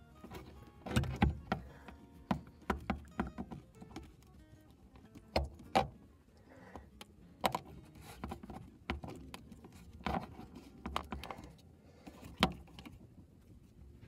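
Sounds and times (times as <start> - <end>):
plastic mount clicking and scraping: 0.1 - 6.0, 6.8 - 13.1.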